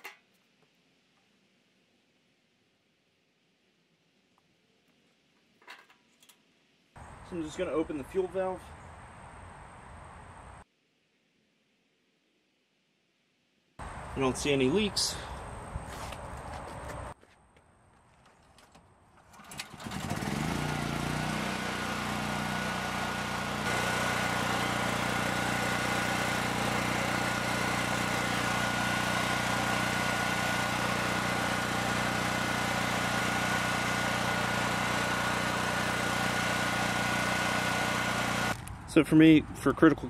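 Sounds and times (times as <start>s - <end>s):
generator engine starting and running: 18.6s - 38.7s.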